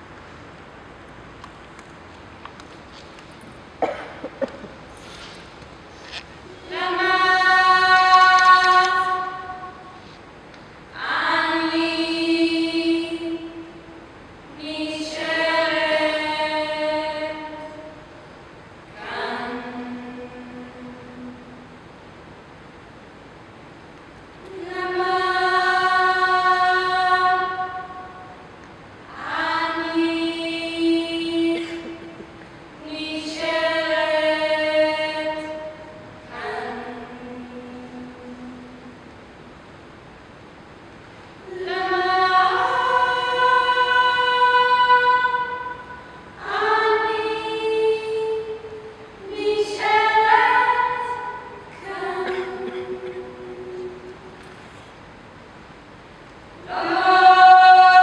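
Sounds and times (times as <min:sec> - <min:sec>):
women singing a cappella: 0:06.5 - 0:10.0, 0:10.9 - 0:18.1, 0:18.9 - 0:21.8, 0:24.5 - 0:39.0, 0:41.4 - 0:54.4, 0:56.6 - 0:58.0.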